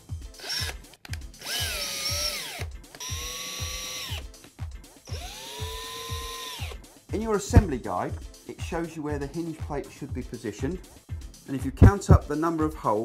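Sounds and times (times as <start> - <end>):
background music with steady beat: 0.0 - 13.0
cordless drill motor whine: 1.4 - 4.2, 5.1 - 6.8.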